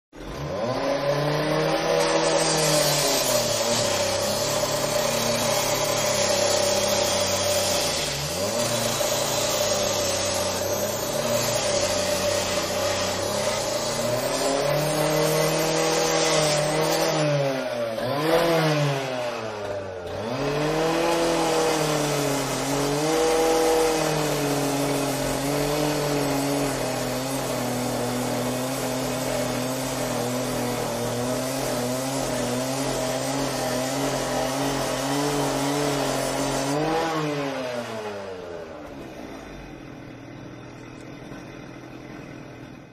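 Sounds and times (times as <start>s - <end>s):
angle grinder motor whine: 0.2s - 42.9s.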